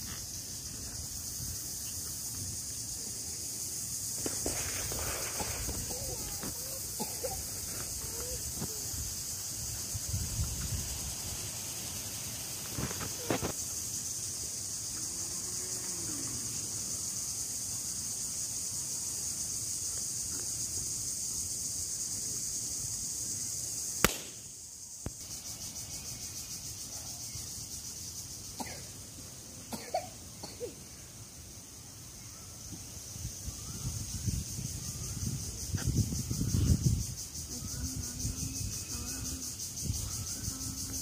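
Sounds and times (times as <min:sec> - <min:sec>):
insect chorus: 0:00.0 - 0:41.0
sharp click: 0:24.0 - 0:24.4.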